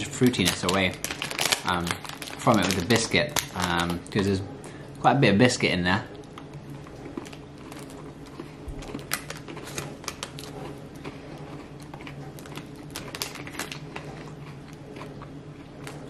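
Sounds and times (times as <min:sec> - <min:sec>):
chewing crunchy biscuit: 0:06.1 - 0:16.0.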